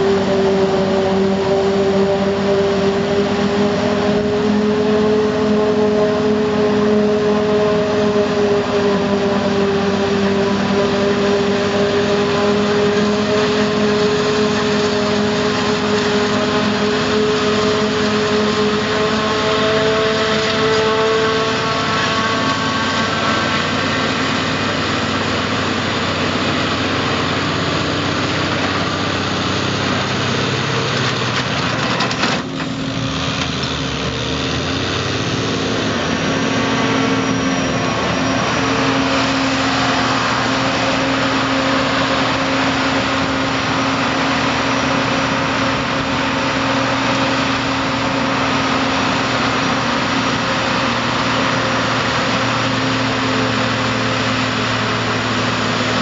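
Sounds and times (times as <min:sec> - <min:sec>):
tractor engine running: 0:00.0 - 0:56.0
forage harvester chopping: 0:10.7 - 0:34.0.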